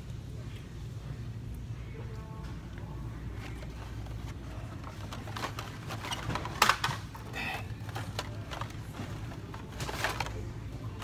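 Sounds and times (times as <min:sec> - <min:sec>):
steady low hum: 0:00.0 - 0:11.0
plastic packs clicking and clattering: 0:03.3 - 0:11.0.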